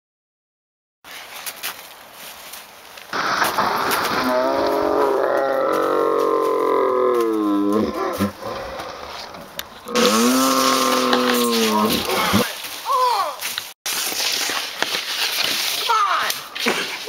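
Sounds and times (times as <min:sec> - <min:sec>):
person yelling: 0:09.9 - 0:13.5.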